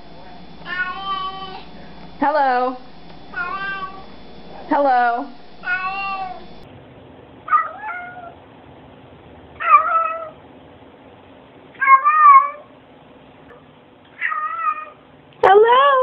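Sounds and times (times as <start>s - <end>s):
cat meowing: 0.6s - 1.7s, 3.3s - 4.1s, 5.6s - 6.5s, 7.5s - 8.4s, 9.6s - 10.4s, 11.8s - 12.7s, 14.2s - 15.0s.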